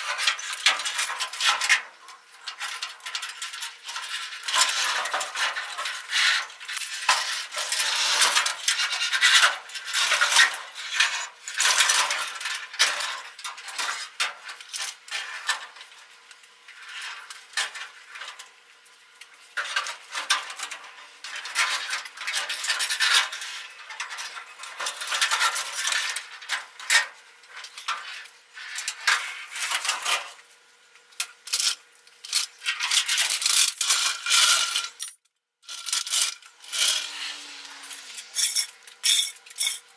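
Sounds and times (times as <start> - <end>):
metal tools clinking and scraping: 31.4 - 39.9.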